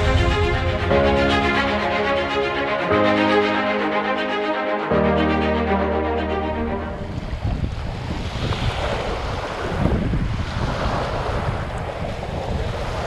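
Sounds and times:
background music: 0:00.0 - 0:07.4
wind buffeting microphone: 0:07.0 - 0:13.0.

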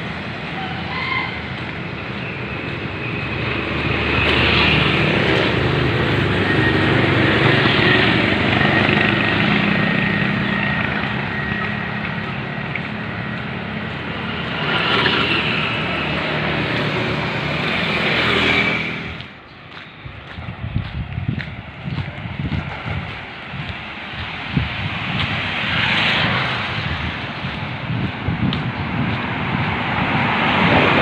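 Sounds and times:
motorcycles riding past: 0:00.0 - 0:19.4.

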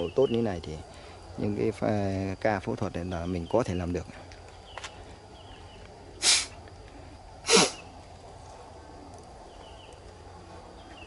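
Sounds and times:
person exhaling explosively: 0:06.2 - 0:06.6, 0:07.4 - 0:07.8.

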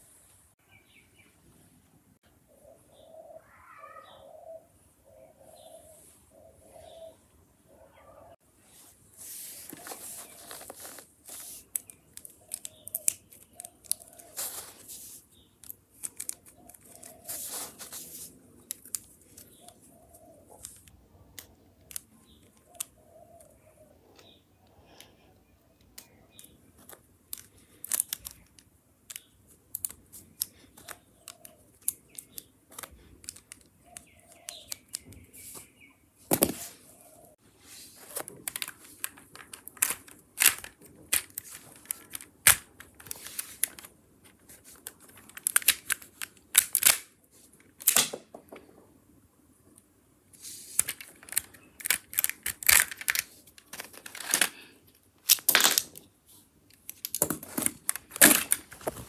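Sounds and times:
plastic pieces clicking: 0:10.2 - 0:14.7, 0:15.6 - 0:17.7, 0:18.6 - 0:19.8, 0:25.8 - 0:35.2, 0:38.1 - 0:48.2, 0:50.7 - 0:56.1, 0:56.7 - 0:59.0.

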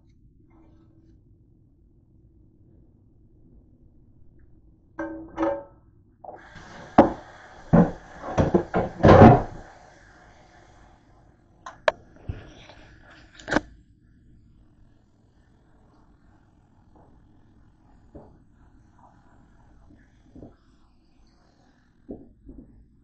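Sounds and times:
ringing clanks: 0:05.0 - 0:05.8
utensil scraping frying pan: 0:06.3 - 0:09.7.

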